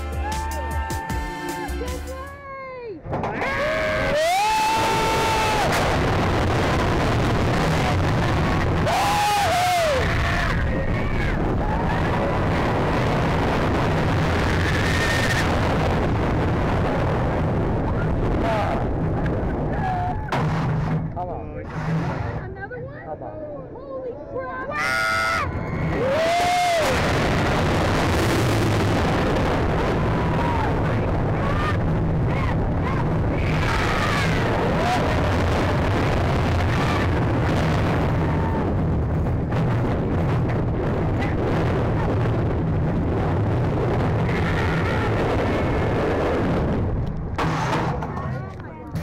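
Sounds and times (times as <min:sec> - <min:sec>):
roller coaster train rumbling: 0:01.8 - 0:49.0
wind rushing over microphone: 0:03.0 - 0:23.0, 0:24.6 - 0:49.0
riders screaming: 0:03.4 - 0:05.8, 0:08.8 - 0:12.4, 0:24.7 - 0:27.0.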